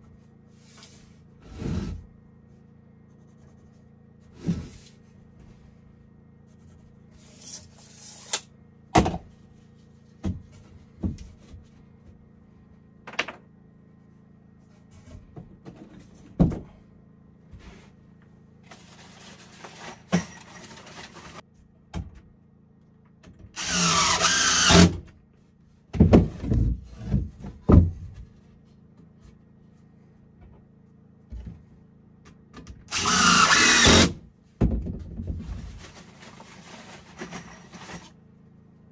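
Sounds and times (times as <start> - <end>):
power drill running: 23.6 - 24.9, 32.9 - 34.2.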